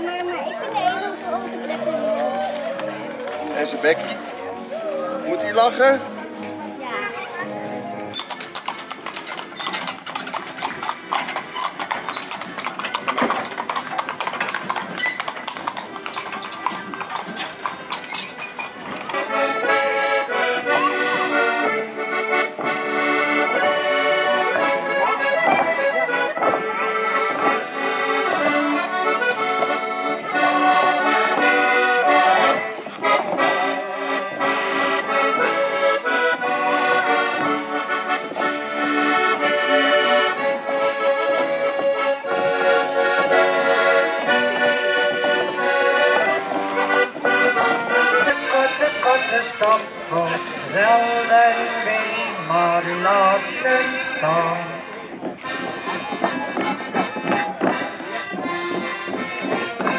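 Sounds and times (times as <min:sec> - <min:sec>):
accordion folk-dance tune: 0:00.0 - 0:59.9
horse hooves on brick: 0:07.5 - 0:59.9.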